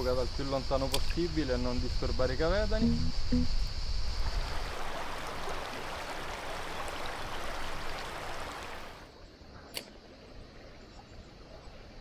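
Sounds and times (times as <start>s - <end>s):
river water flowing: 4.2s - 9.2s
sharp click: 9.7s - 10.0s.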